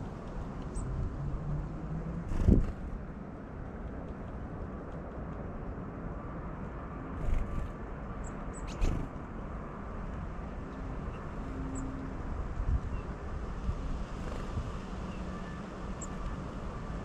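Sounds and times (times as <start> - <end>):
high-pitched bird peeps: 8.2 - 9.0.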